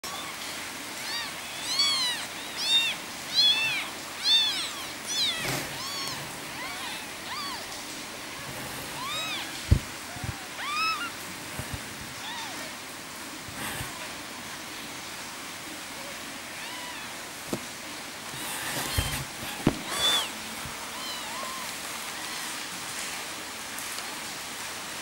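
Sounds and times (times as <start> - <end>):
kittens mewing: 0.0 - 12.8, 13.5 - 14.2, 16.4 - 17.7, 18.3 - 22.7.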